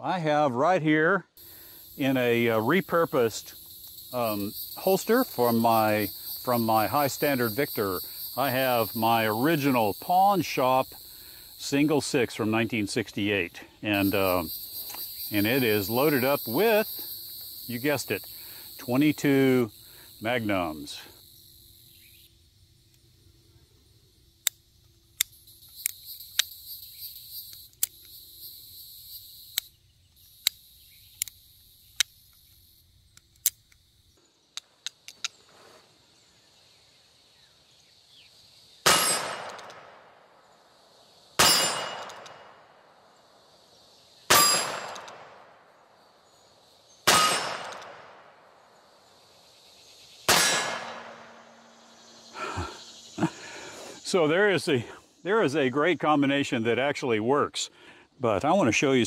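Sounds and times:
sharp clicks: 0:30.4 - 0:33.8, 0:39.2 - 0:39.8, 0:44.5 - 0:45.3, 0:47.4 - 0:48.0
revolver shots: 0:50.3 - 0:51.4
metallic ringing clang: 0:50.3 - 0:51.8.

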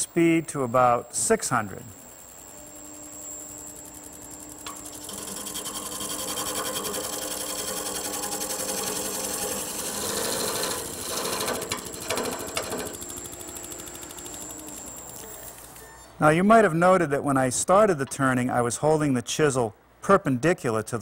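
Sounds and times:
lathe motor whine: 0:01.6 - 0:15.8.

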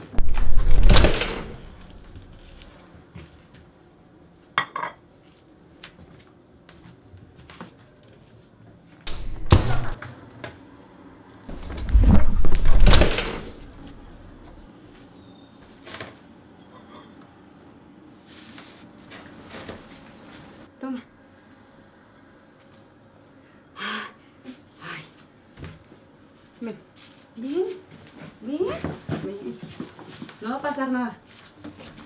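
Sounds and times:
heavy door thuds: 0:00.2 - 0:02.4, 0:09.1 - 0:10.0, 0:11.5 - 0:14.5.

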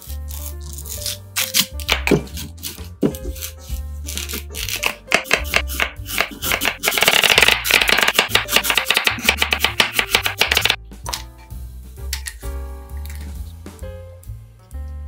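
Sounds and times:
background music: 0:00.0 - 0:15.0
knife chopping on wooden board: 0:00.4 - 0:11.2.

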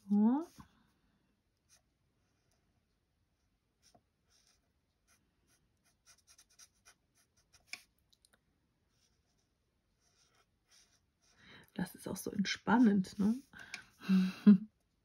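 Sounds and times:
marker scratching on card: 0:03.8 - 0:07.9, 0:10.0 - 0:11.3.

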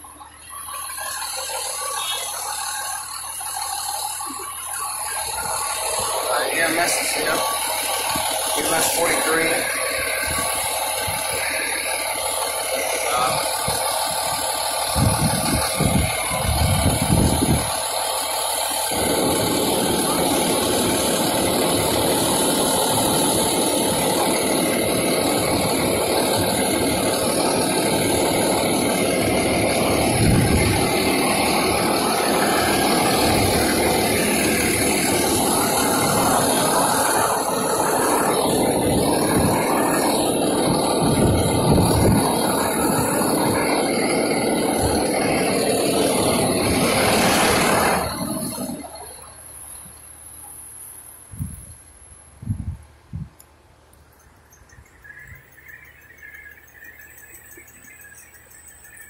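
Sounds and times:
diesel engine idling: 0:00.0 - 0:51.0
deep rumble: 0:24.8 - 0:48.3.

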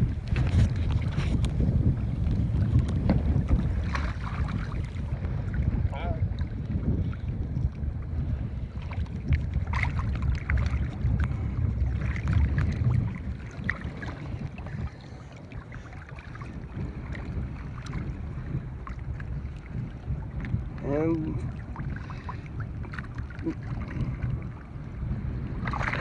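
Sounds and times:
water lapping: 0:00.0 - 0:26.0
wind rumbling on microphone: 0:00.0 - 0:26.0
small water splashes: 0:02.6 - 0:07.3, 0:08.8 - 0:18.2, 0:18.8 - 0:24.7, 0:25.6 - 0:26.0.

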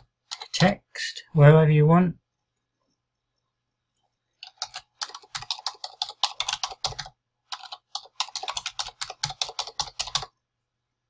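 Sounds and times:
typing on a keyboard: 0:00.3 - 0:00.6, 0:04.4 - 0:10.3.

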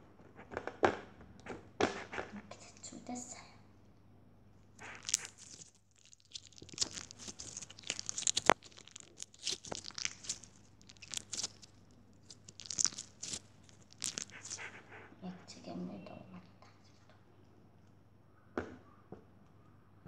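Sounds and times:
slime crunching and crackling: 0:04.8 - 0:15.1.

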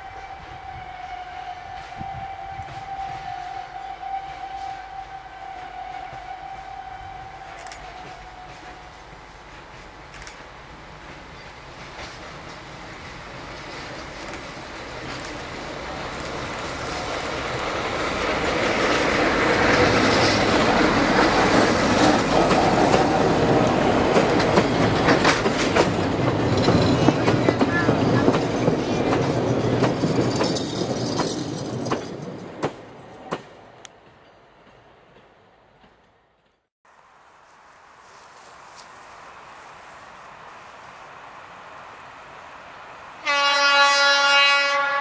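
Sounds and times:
diesel train passing: 0:00.0 - 0:45.0
wheels clacking over rail joints: 0:07.8 - 0:36.1.

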